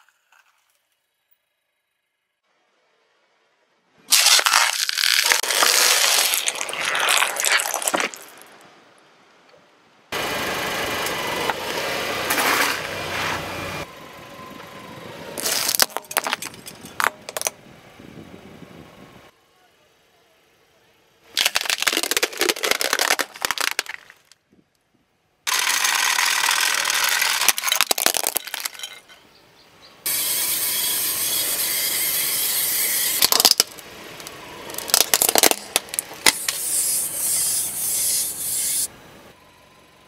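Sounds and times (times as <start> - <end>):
tyre crushing plastic toys: 4.1 - 8.5, 15.4 - 17.5, 21.3 - 24.4, 25.5 - 29.1, 33.2 - 33.8, 34.7 - 36.6.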